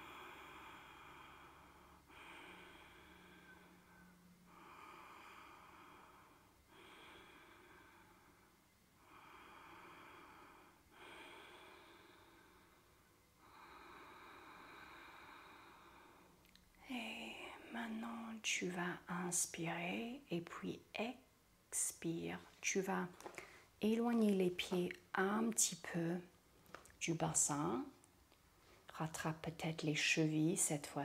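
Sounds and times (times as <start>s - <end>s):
faint slow breathing: 0.0s - 16.5s, 23.2s - 23.8s.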